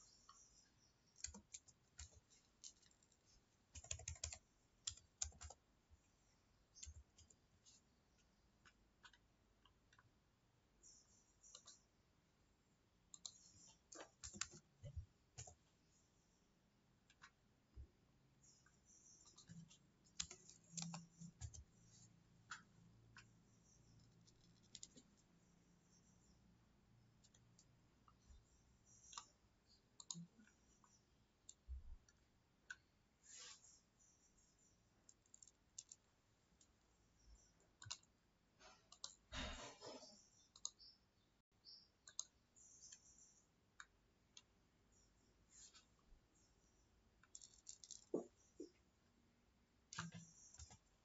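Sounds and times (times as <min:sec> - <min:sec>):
computer mouse clicks: 0:00.1 - 0:05.6, 0:08.6 - 0:10.1, 0:10.8 - 0:11.9, 0:13.1 - 0:15.6, 0:18.4 - 0:25.2, 0:28.9 - 0:36.7, 0:37.4 - 0:38.2, 0:38.9 - 0:39.3, 0:40.1 - 0:41.0, 0:41.7 - 0:45.0, 0:47.2 - 0:48.8, 0:49.9 - 0:50.9
computer keyboard keystrokes: 0:01.2 - 0:03.1, 0:03.7 - 0:05.6, 0:13.2 - 0:14.7, 0:19.3 - 0:21.7, 0:24.2 - 0:25.0, 0:37.8 - 0:38.2, 0:47.2 - 0:48.2
mouse clicks: 0:13.1 - 0:14.7, 0:28.9 - 0:33.6, 0:40.4 - 0:41.0, 0:41.6 - 0:45.0, 0:49.9 - 0:50.9.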